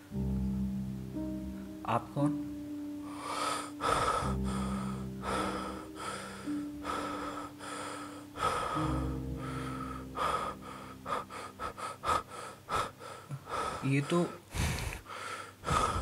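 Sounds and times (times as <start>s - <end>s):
low music drone: 0.0s - 14.2s.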